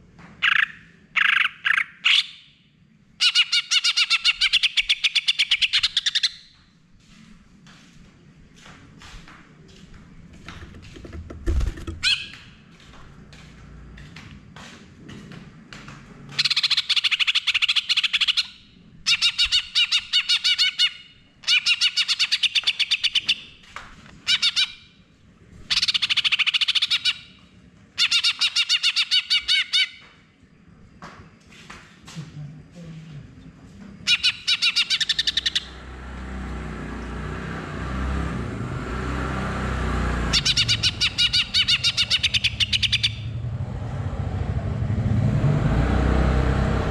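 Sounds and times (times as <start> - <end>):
bird chirps and calls: 3.2 - 6.6, 12.0 - 12.5, 16.4 - 23.6, 24.2 - 24.9, 25.7 - 27.4, 28.0 - 30.1, 34.0 - 35.9, 40.3 - 43.4
bird singing rapid repeated notes: 3.2 - 6.7, 11.5 - 12.7, 16.4 - 23.6, 25.7 - 27.4, 34.0 - 35.9, 40.3 - 43.5.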